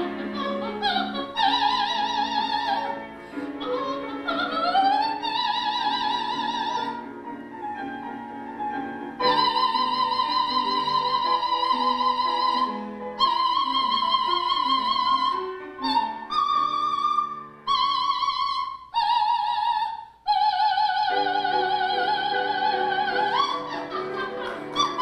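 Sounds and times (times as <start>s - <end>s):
soprano singing operatic notes: 0.0s - 25.0s
instrumental accompaniment: 21.1s - 25.0s.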